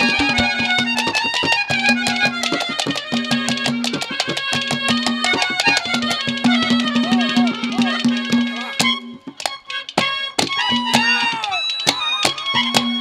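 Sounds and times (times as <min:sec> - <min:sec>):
instrumental band melody: 0:00.0 - 0:13.0.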